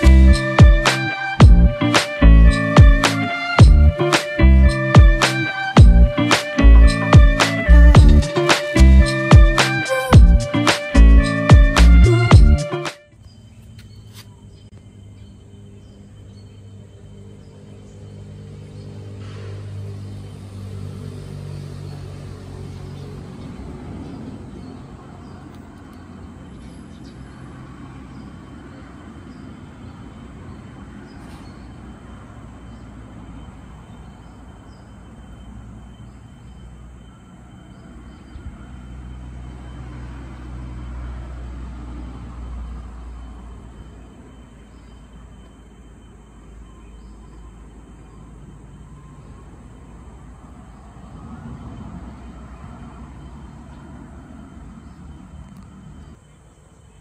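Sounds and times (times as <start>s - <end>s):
road traffic rumble: 0.0s - 57.0s.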